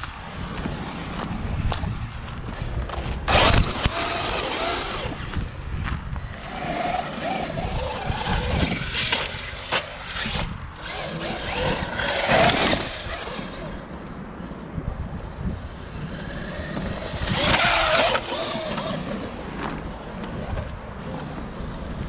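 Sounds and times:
tyres on dirt: 0.0 - 22.0
electric motor whining: 2.6 - 13.9, 15.7 - 22.0.

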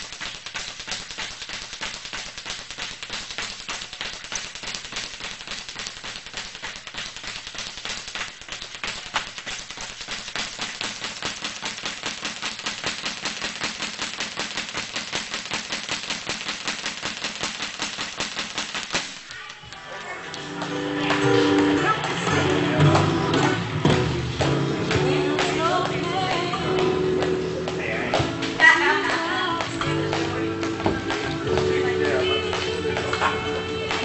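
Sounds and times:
speed bag rattling: 0.0 - 23.7
guitar music: 20.0 - 34.0.

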